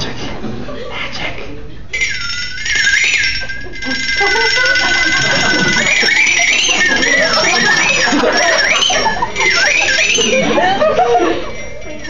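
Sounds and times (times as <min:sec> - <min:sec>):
buzzy electronic toy tone: 0:02.0 - 0:10.6.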